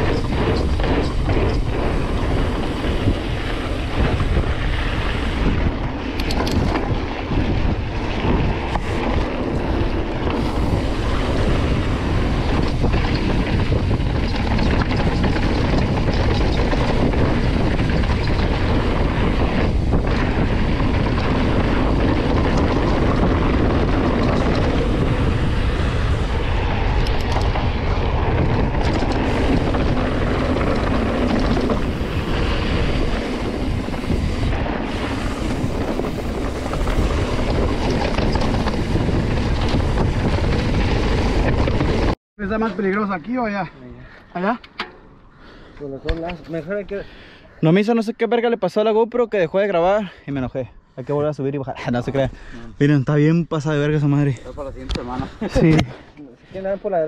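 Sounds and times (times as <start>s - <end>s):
wind on microphone: 0.0s - 42.2s
bike knocking and rattling: 0.0s - 43.6s, 44.4s - 45.2s
tyres rumbling over dirt trail: 0.0s - 57.0s.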